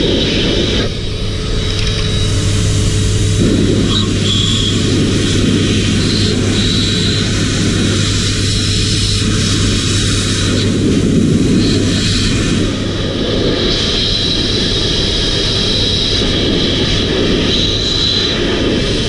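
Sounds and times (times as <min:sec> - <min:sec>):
electric blower running: 0:00.0 - 0:19.0
loud rush of air: 0:00.0 - 0:19.0.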